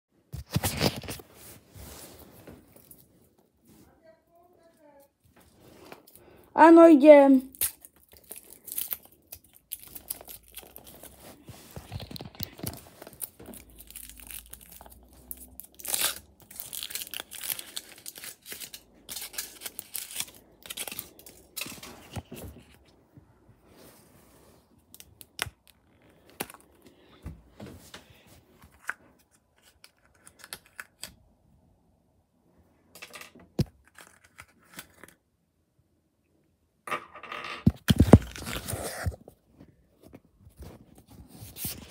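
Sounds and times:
foil wrapper crinkling and tearing: 7.5s - 22.4s.

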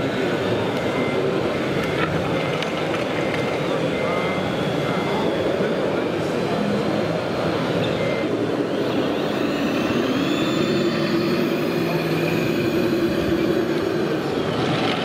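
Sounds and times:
model truck engine: 0.0s - 15.0s
din of model machines: 0.1s - 15.0s.

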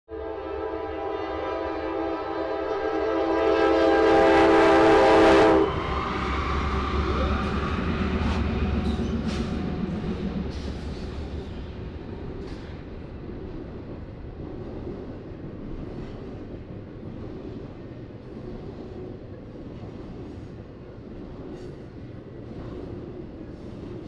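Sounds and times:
locomotive horn blast: 0.1s - 6.2s
train engine rumble: 0.1s - 24.0s
train wheel clicks: 7.3s - 24.0s.

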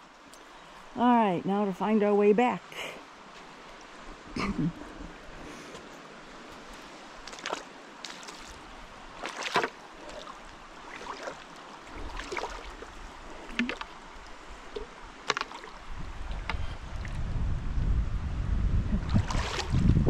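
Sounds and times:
river water rushing: 2.6s - 17.1s
wind rumble on microphone: 15.8s - 20.0s.

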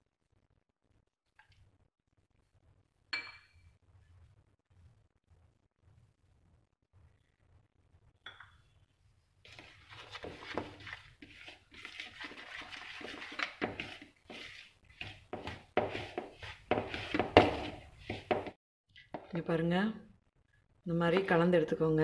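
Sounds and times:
metal spoon stirring batter in bowl: 9.5s - 19.5s.

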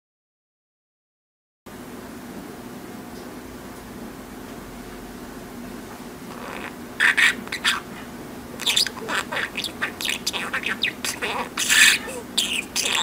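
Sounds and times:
steady low hum: 1.7s - 13.0s
budgerigar chattering: 6.3s - 7.9s, 8.6s - 13.0s.

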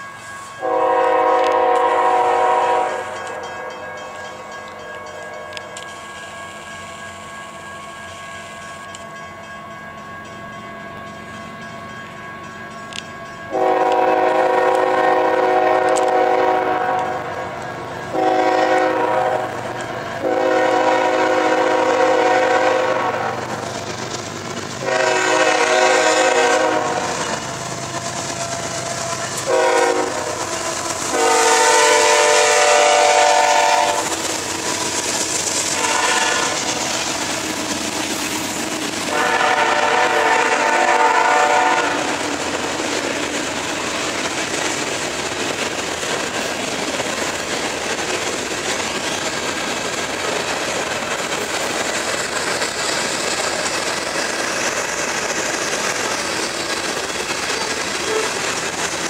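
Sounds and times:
train wheels clattering on rails: 0.0s - 59.0s
locomotive air horn blasts: 0.6s - 3.8s, 13.5s - 17.4s, 18.1s - 19.5s, 20.2s - 23.4s, 24.8s - 27.3s, 29.4s - 30.4s, 31.1s - 34.2s, 35.7s - 36.7s, 39.1s - 42.2s.

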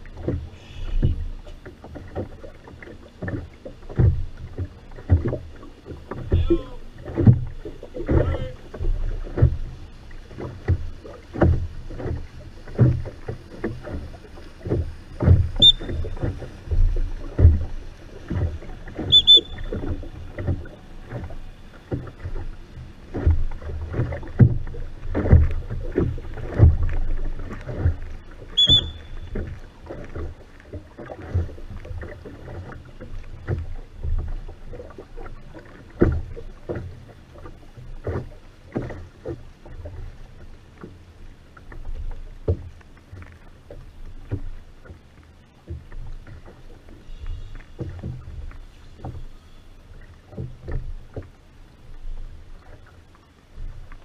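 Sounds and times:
oar splashes and knocks: 0.0s - 54.0s
high squeaks: 15.6s - 16.0s, 19.1s - 19.7s, 28.6s - 29.3s.

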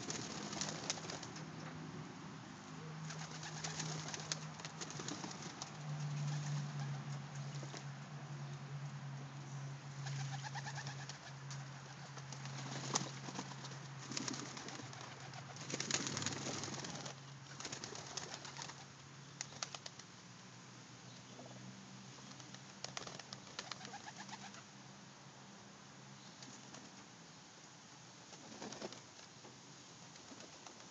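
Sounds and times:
wing beats and splashing: 0.0s - 1.5s, 3.0s - 7.9s, 10.1s - 20.1s
pigeon cooing: 2.8s - 5.0s, 10.0s - 12.1s, 23.6s - 24.7s.

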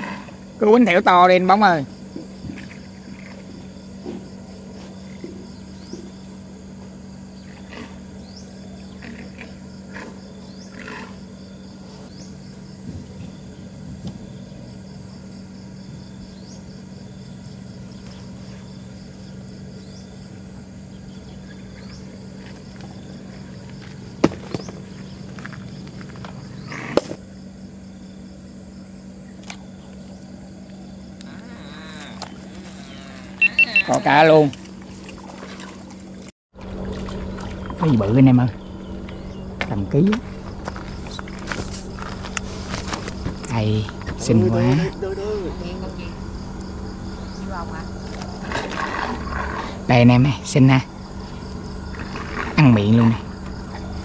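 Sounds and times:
steady low hum: 0.0s - 54.0s
faint short chirps: 33.4s - 34.0s.

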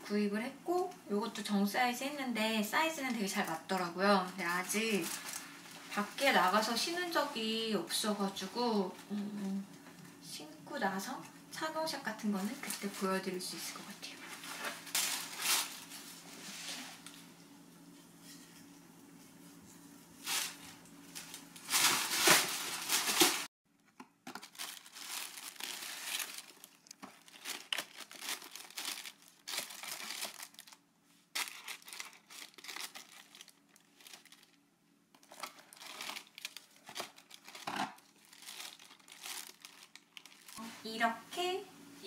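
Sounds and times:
tissue paper crinkling: 4.7s - 6.6s, 14.2s - 17.1s, 20.2s - 23.5s, 24.3s - 34.6s, 35.2s - 40.7s.

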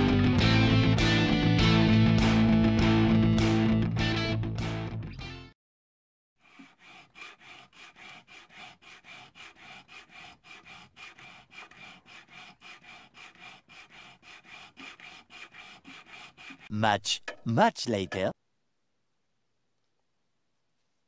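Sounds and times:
sandpaper rubbing on wood: 6.4s - 16.7s.

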